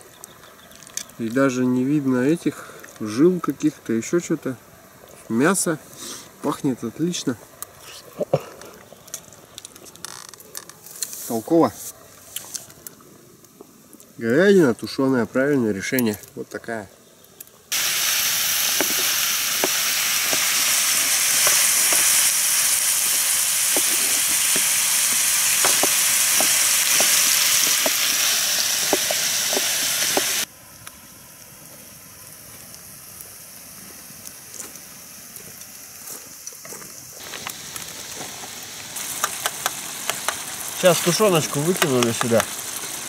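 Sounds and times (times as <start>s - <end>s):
vegetables sizzling in frying pan: 17.7s - 30.5s, 31.2s - 43.0s.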